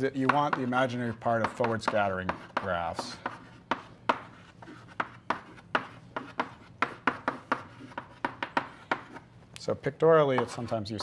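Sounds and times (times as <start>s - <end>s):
chalk tapping and scraping on blackboard: 0.1s - 9.3s, 10.2s - 11.0s.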